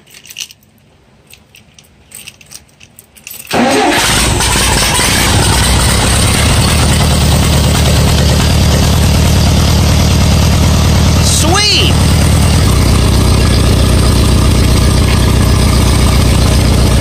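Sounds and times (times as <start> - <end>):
tractor engine starting and running: 3.4 - 17.0.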